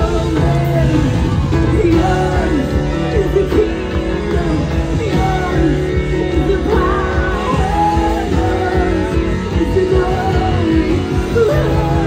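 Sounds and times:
guitar and band playing: 0:00.0 - 0:12.0
person singing lead: 0:00.0 - 0:12.0.

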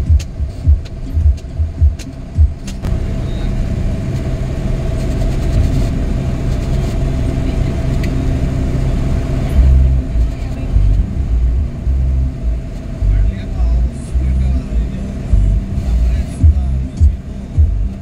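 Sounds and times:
low thumps and clicks: 0:00.0 - 0:03.0, 0:09.5 - 0:18.0
constant hum: 0:00.0 - 0:18.0
engine and road rumble: 0:00.0 - 0:18.0.

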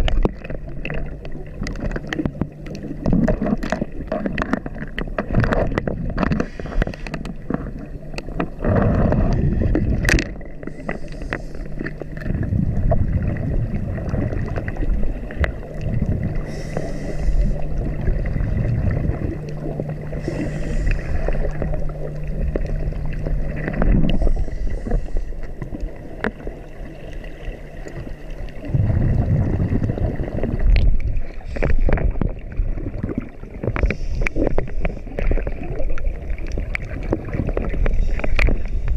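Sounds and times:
exhaled bubbles gurgling: 0:00.0 - 0:38.9
steady low hum: 0:00.0 - 0:38.9
regulator inhale hiss: 0:06.4 - 0:07.2, 0:10.6 - 0:12.0, 0:16.4 - 0:17.8, 0:20.1 - 0:21.7, 0:24.1 - 0:25.6, 0:33.8 - 0:35.1.

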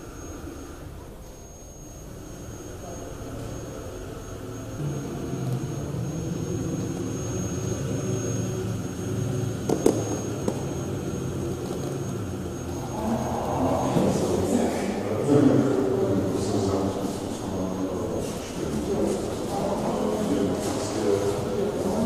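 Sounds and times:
robot drive motors humming: 0:00.0 - 0:22.0
thin high whine: 0:00.0 - 0:22.0.

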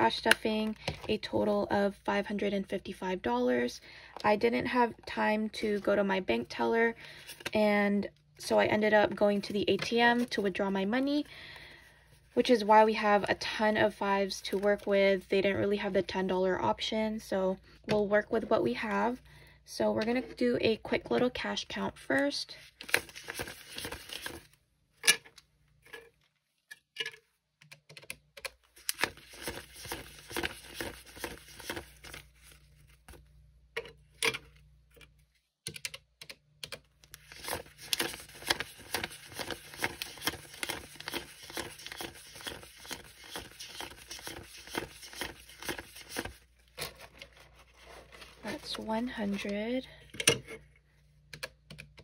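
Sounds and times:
banknotes flicking and crinkling: 0:22.7 - 0:24.6, 0:28.4 - 0:33.3, 0:36.7 - 0:49.6.

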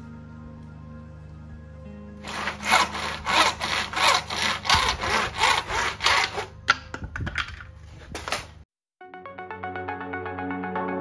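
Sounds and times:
handsaw cutting plastic: 0:02.2 - 0:06.6.

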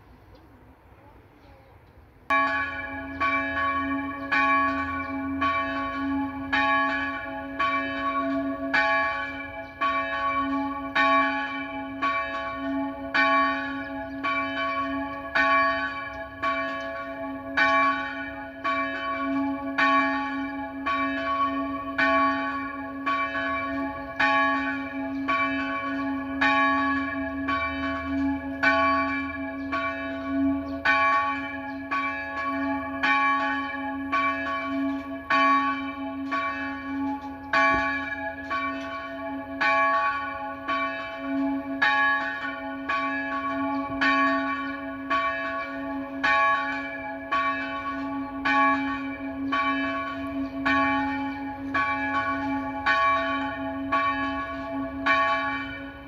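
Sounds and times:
church bell ringing: 0:02.3 - 0:56.0.

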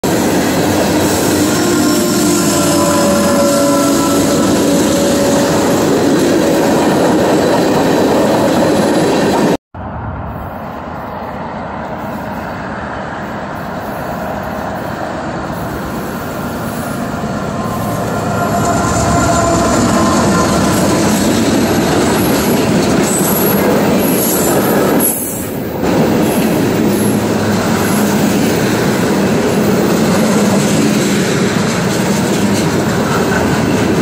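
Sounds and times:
freight train rumble: 0:00.0 - 0:34.0
freight car wheels squealing: 0:16.0 - 0:25.5.

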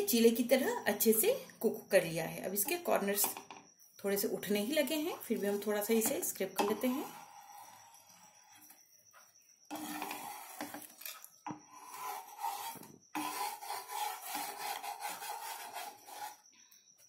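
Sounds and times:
wooden spatula scraping a pan: 0:04.9 - 0:08.6, 0:09.7 - 0:16.4.

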